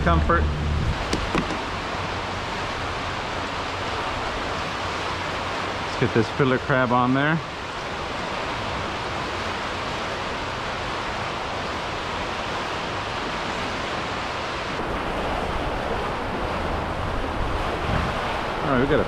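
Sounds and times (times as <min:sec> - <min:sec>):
wind buffeting microphone: 0:00.0 - 0:05.5, 0:14.8 - 0:19.0
water lapping around kayak: 0:00.0 - 0:19.0.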